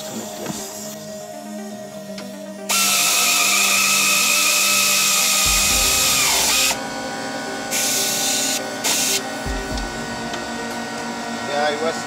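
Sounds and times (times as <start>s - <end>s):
pneumatic air ratchet whining: 2.2s - 10.6s.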